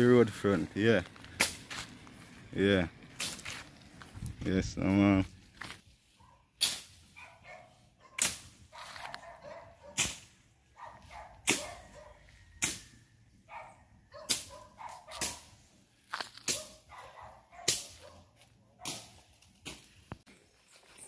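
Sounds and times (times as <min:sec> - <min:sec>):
dogs barking: 0:06.2 - 0:12.4, 0:13.4 - 0:15.6, 0:16.5 - 0:19.3.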